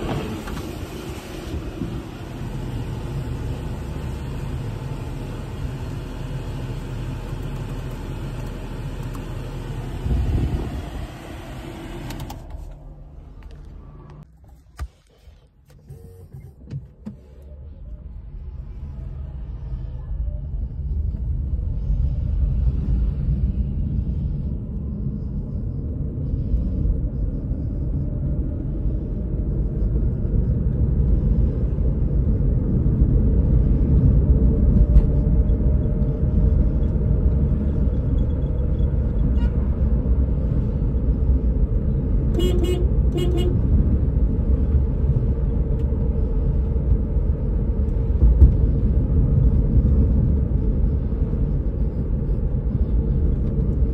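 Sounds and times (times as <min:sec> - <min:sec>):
road and tyre rumble: 0:00.0 - 0:53.9
car horn toots: 0:42.3 - 0:43.7.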